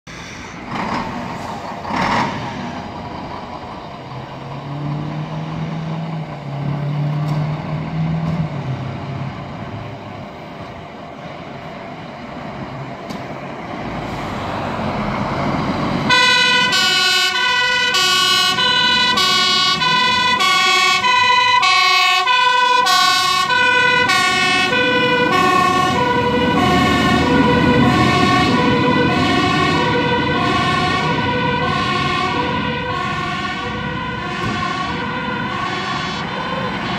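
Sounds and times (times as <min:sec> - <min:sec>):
fire engine running: 0:00.0 - 0:36.9
two-tone siren: 0:16.0 - 0:36.9.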